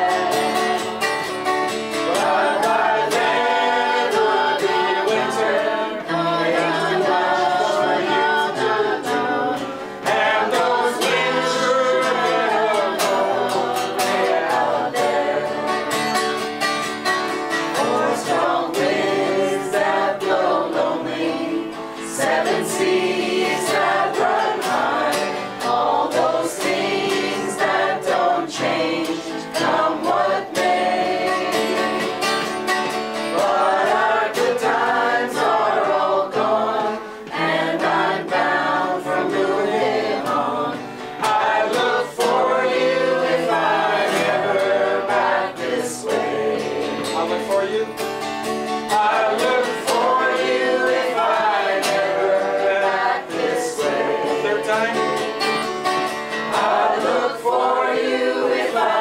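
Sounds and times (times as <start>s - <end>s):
mixed choir singing folk song: 0.0s - 59.0s
strummed acoustic guitar: 0.0s - 59.0s.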